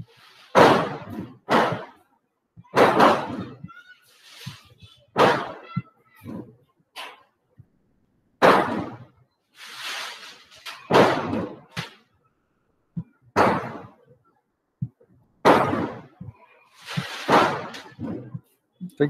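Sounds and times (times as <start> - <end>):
sharp bangs: 0.5 - 2.0, 2.6 - 3.7, 4.4 - 7.2, 8.4 - 12.1, 12.9 - 14.1, 14.8 - 18.6.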